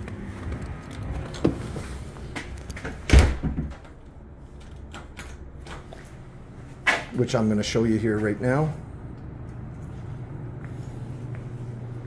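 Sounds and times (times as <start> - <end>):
door shutting with thump: 3.0 - 3.8.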